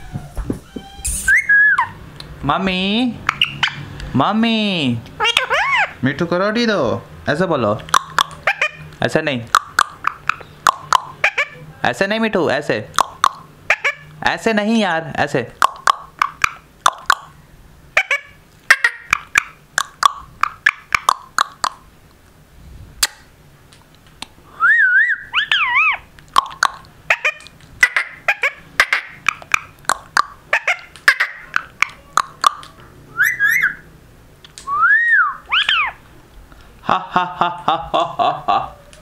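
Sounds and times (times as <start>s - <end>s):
wavering whistles: 0.7s - 2.0s, 24.5s - 26.0s, 33.1s - 33.9s, 34.6s - 36.0s
parrot chirps: 0.9s - 2.0s, 3.2s - 3.9s, 5.2s - 6.0s, 7.9s - 8.9s, 9.5s - 11.6s, 13.0s - 14.2s, 15.6s - 21.8s, 24.6s - 34.0s, 34.6s - 36.0s
parrot clicking: 7.8s - 11.2s, 12.9s - 13.4s, 15.6s - 17.3s, 18.8s - 21.8s, 26.2s - 27.7s, 28.9s - 32.8s.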